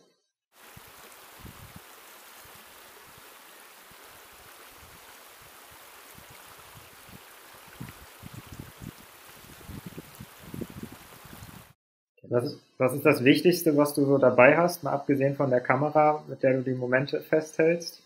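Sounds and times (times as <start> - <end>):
river rushing over stones: 0.6 - 11.7.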